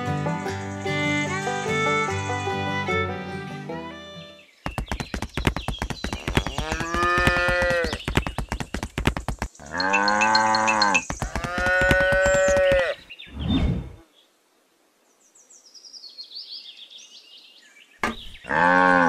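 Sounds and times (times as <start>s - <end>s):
cattle mooing: 9.7s - 13.0s, 18.4s - 19.0s.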